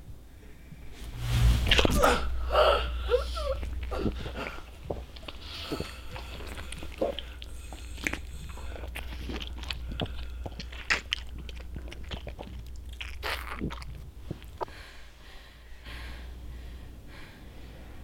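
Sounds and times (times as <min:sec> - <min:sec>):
low steady hum: 0:00.0 - 0:18.0
wet biting and chewing: 0:04.1 - 0:14.7.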